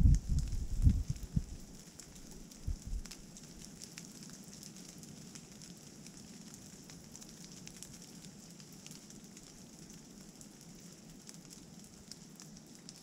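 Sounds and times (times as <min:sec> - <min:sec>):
light rain hissing: 0:00.0 - 0:13.0
raindrops ticking: 0:00.0 - 0:13.0.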